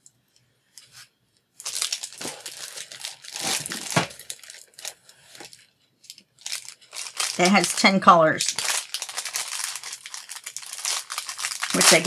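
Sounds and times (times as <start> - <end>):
plastic packaging crinkling: 1.6 - 12.0.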